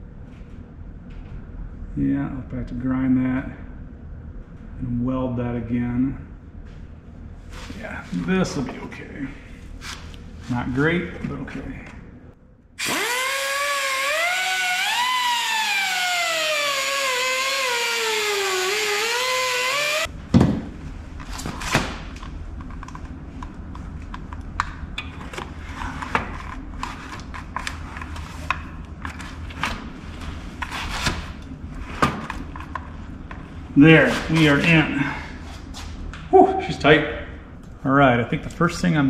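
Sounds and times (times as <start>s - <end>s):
power grinder whining on metal: 12.8s - 20.1s.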